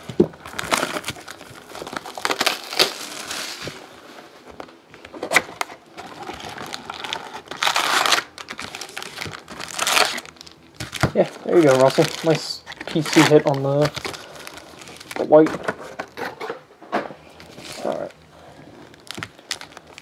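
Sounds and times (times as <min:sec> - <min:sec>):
plastic wrap tearing and crinkling: 0:00.0 - 0:03.9, 0:05.2 - 0:16.4, 0:17.4 - 0:18.2, 0:18.8 - 0:20.0.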